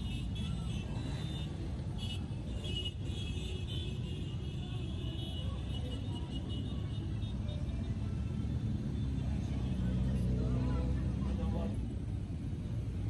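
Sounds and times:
motorcycle engines rumbling: 0.0 - 13.0.

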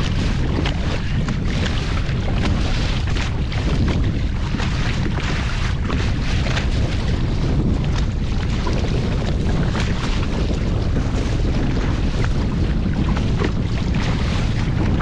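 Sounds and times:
rough water slapping kayak: 0.0 - 15.0
wind buffeting microphone: 0.0 - 15.0.

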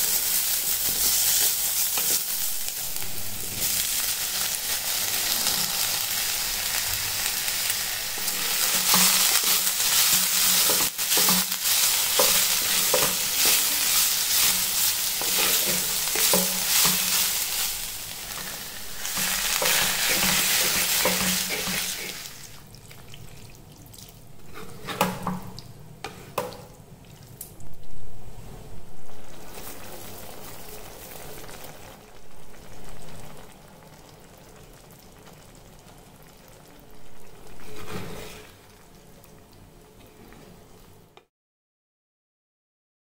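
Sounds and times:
spatula stirring and scraping: 0.0 - 2.5, 8.2 - 22.4, 24.4 - 25.4, 37.5 - 38.7
vegetables sizzling in a pot: 0.0 - 23.2, 28.8 - 41.2.

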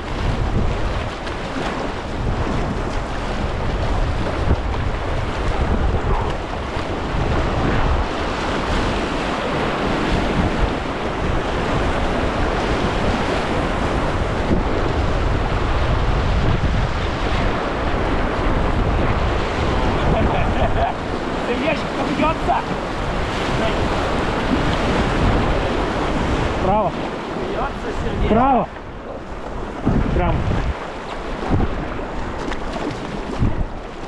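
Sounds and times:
river water rushing: 0.0 - 34.0
wind buffeting microphone: 0.0 - 34.0.

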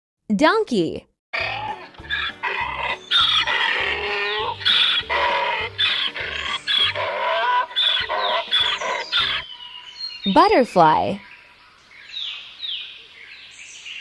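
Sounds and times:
donkey braying: 1.4 - 9.5.

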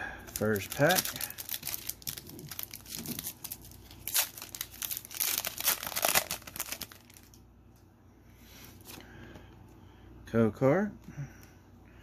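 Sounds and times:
foil wrapper crinkling and tearing: 0.2 - 7.4.

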